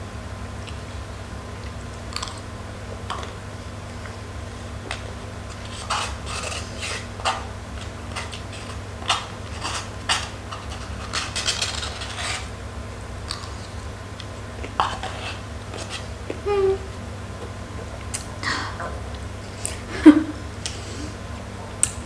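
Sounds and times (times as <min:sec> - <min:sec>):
plastic spoon scraping paper cup: 0:05.5 - 0:12.5, 0:14.7 - 0:16.1.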